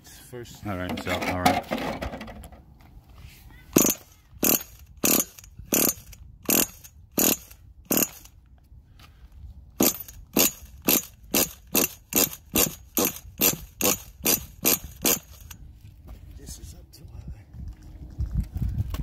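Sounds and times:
pull-starter whirring rasp: 0:03.8 - 0:08.4, 0:09.8 - 0:15.6.

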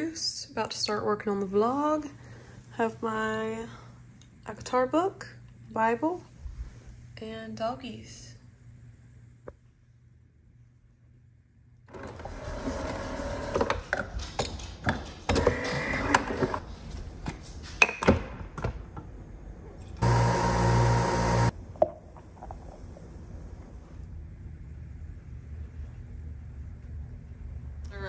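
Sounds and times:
coffee machine electric buzz: 0:11.9 - 0:13.8, 0:20.0 - 0:21.6.

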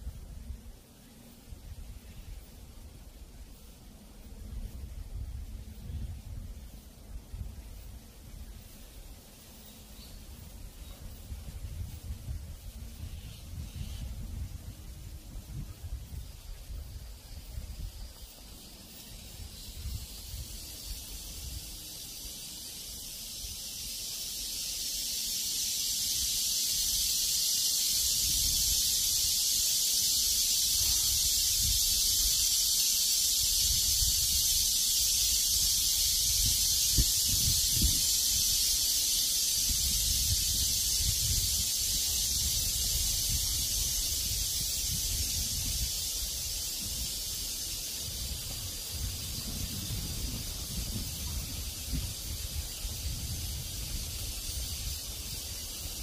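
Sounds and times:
cicadas singing: 0:00.0 - 0:56.0
wind buffeting microphone: 0:35.5 - 0:38.7, 0:39.6 - 0:56.0.

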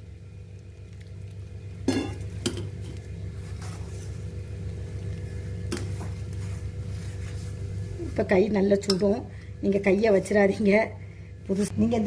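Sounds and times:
steady low hum: 0:00.0 - 0:12.0
spoon stirring dough in metal bowl: 0:01.9 - 0:07.9.

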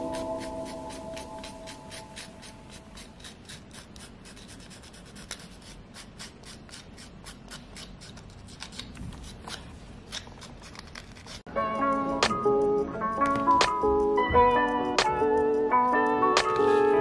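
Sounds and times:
sandpaper scraping leather edge: 0:00.0 - 0:11.5.

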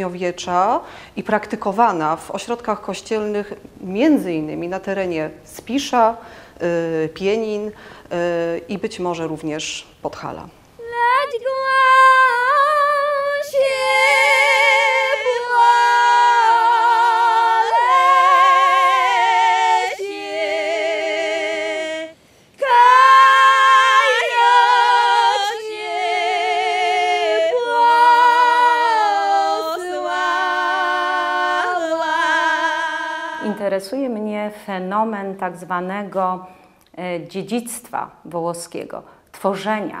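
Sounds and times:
women singing folk harmony: 0:10.7 - 0:36.7.

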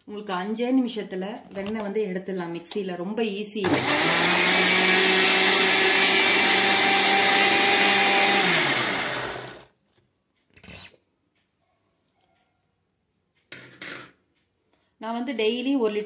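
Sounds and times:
mixer grinder motor running: 0:03.7 - 0:09.7
motor winding down: 0:03.7 - 0:09.7.

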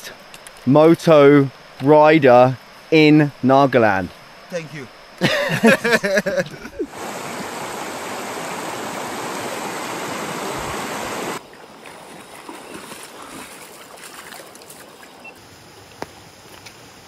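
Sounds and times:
river rushing over rocks: 0:06.5 - 0:15.0.

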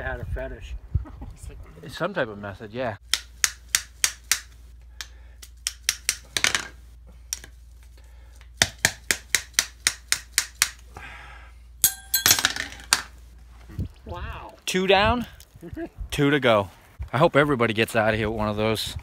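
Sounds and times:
spoon dropped clattering: 0:11.8 - 0:13.0.

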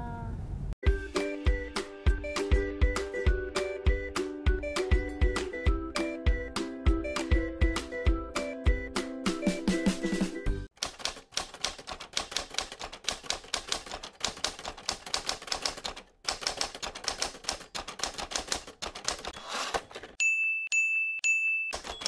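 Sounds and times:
typewriter keys clacking: 0:10.7 - 0:20.2, 0:21.7 - 0:22.0
typewriter bell dings: 0:19.4 - 0:22.0.

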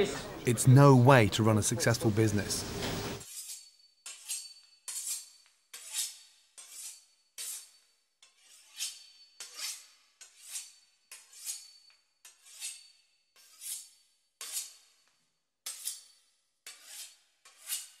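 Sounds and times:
knife sawing through crisp pastry: 0:03.2 - 0:15.0, 0:15.7 - 0:18.0.

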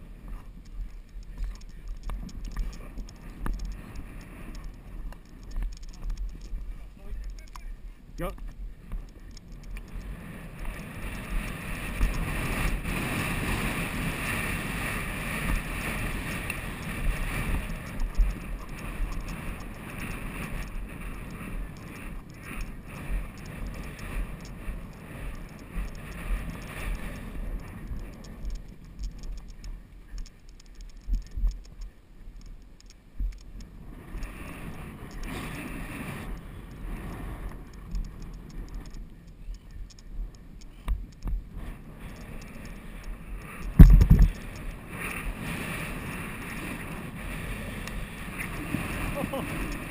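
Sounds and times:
wind buffeting microphone: 0:00.0 - 0:49.9.

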